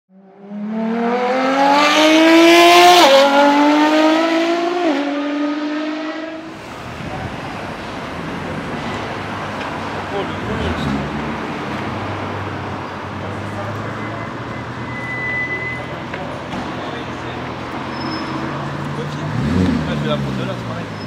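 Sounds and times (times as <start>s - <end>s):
car engine accelerating: 0.2s - 12.7s, 17.1s - 21.0s.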